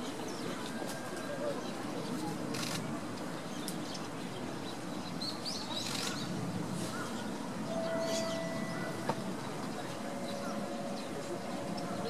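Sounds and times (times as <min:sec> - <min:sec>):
outdoor background murmur: 0:00.0 - 0:12.0.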